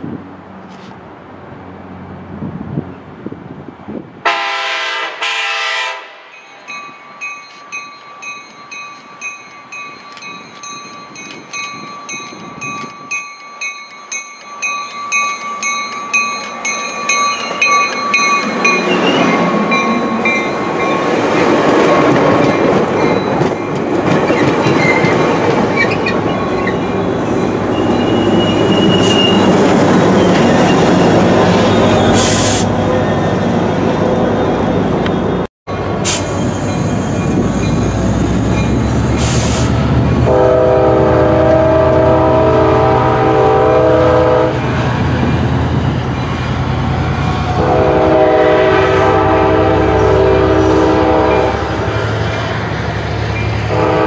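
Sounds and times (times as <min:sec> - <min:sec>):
train passing rumble: 0:00.0 - 0:54.0
train horn blast: 0:04.2 - 0:06.3, 0:40.2 - 0:44.6, 0:47.5 - 0:52.0, 0:53.7 - 0:54.0
bell ringing: 0:06.4 - 0:21.6.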